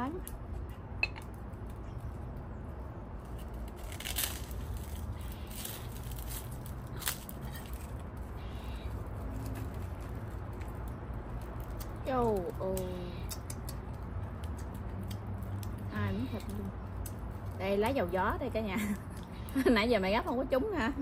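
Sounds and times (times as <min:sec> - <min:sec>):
crisp rustles: 0:03.2 - 0:12.8.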